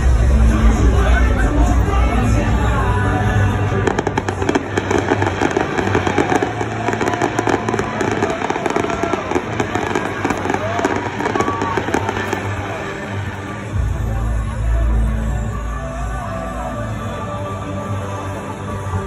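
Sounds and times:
crowd voices: 0.0s - 19.0s
fireworks crackling pops: 3.8s - 13.7s.

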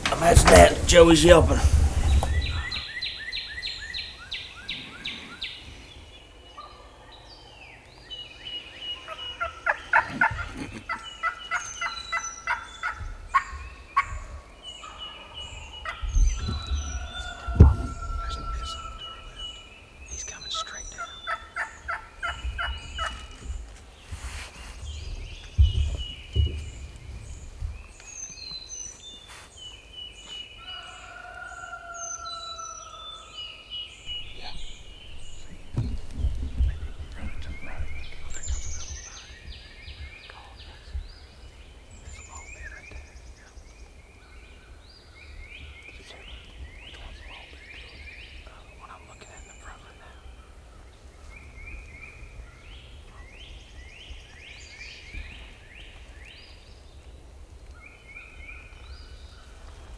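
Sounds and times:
low rumble: 0.0s - 2.9s, 34.1s - 39.2s
songbirds chirping: 0.0s - 59.9s
turkey gobbling: 9.1s - 14.3s.

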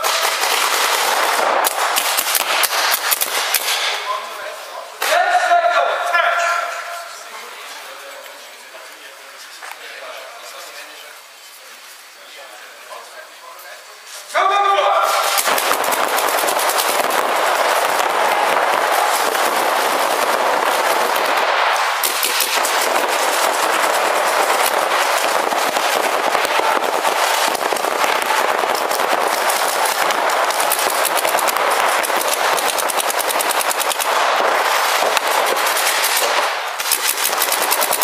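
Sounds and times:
paintball markers firing: 0.0s - 4.0s, 15.1s - 38.0s.

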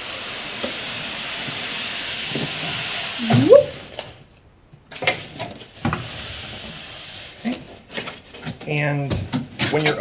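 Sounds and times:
short rising squeak: 3.2s - 3.7s.

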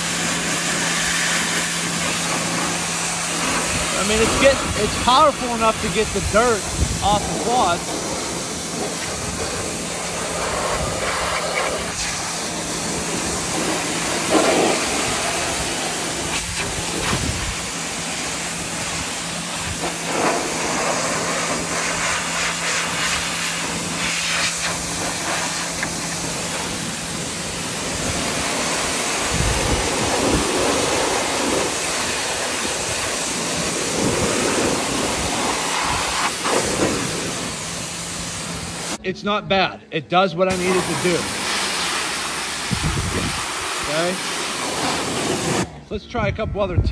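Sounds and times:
pressure washer water jet hissing: 0.0s - 39.0s, 40.5s - 45.8s.

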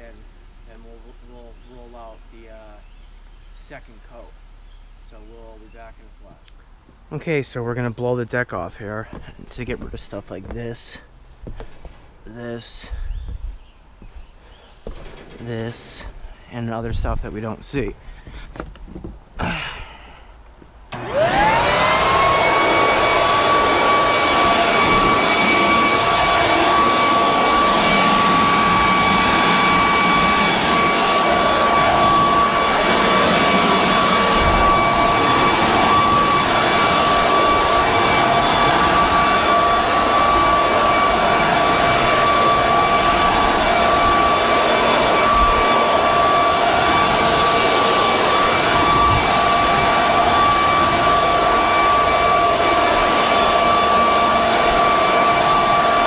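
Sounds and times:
leaf blower whining: 9.0s - 12.1s, 20.9s - 56.0s.

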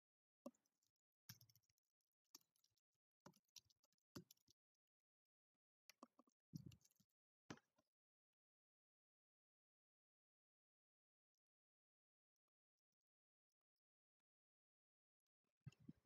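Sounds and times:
typing on computer keyboard: 1.3s - 1.7s, 2.4s - 4.6s.

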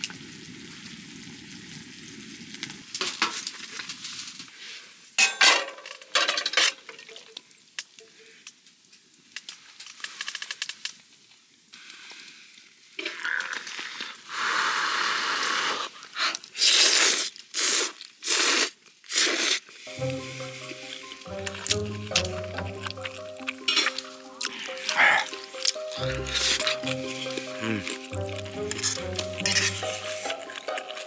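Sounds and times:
metal fork scraping frying pan: 28.7s - 30.8s.

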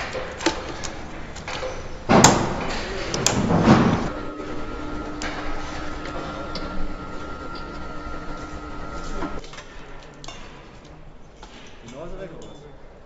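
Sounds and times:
steady machine noise: 0.0s - 9.4s
scattered clicks and knocks: 0.0s - 11.8s
low and high hum tones: 3.4s - 9.4s.

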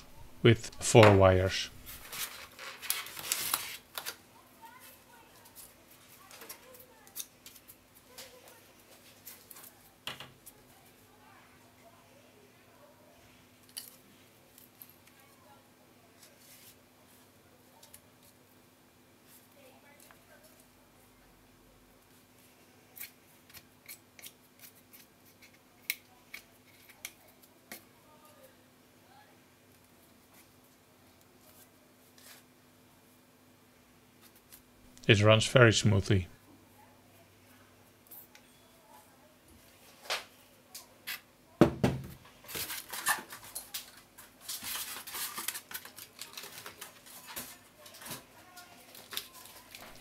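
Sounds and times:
faint steady hum: 0.0s - 50.0s
foam packaging rustling and scraping: 1.8s - 5.5s, 42.4s - 50.0s.

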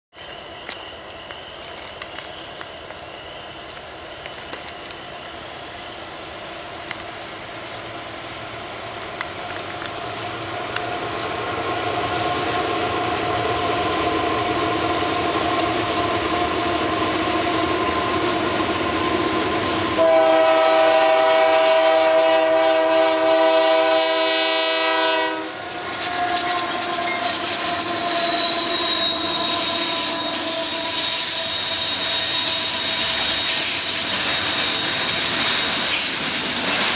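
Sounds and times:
freight train rolling: 0.1s - 36.9s
locomotive horn blast: 20.0s - 32.8s
thin high whine: 25.4s - 36.9s.

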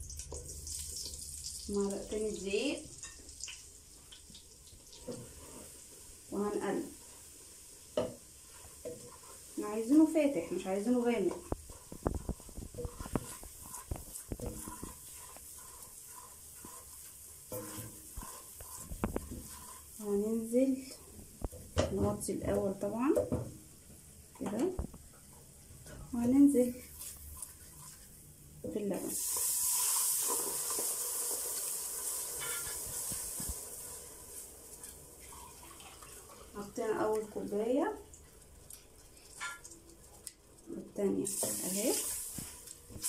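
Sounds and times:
milk sizzling in hot pan: 0.0s - 43.0s
spatula stirring roux: 4.2s - 22.8s, 25.1s - 37.4s
spatula knocking and scraping pot: 7.9s - 23.6s, 32.4s - 33.6s.

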